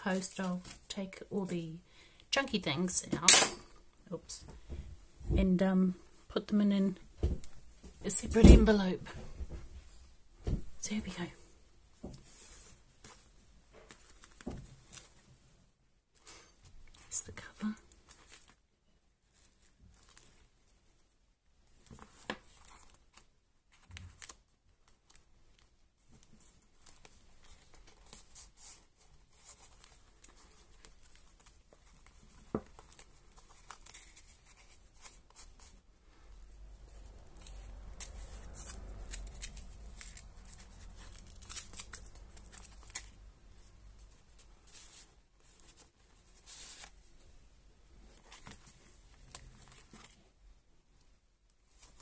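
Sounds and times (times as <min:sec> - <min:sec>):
paper pages rustling: 0:12.2 - 0:15.2, 0:19.3 - 0:20.5, 0:21.8 - 0:35.8, 0:36.8 - 0:47.1, 0:48.1 - 0:50.2.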